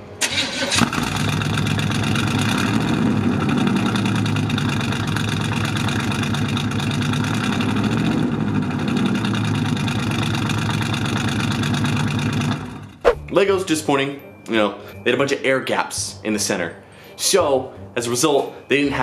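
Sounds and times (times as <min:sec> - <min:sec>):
car engine idling: 0:01.0 - 0:13.0.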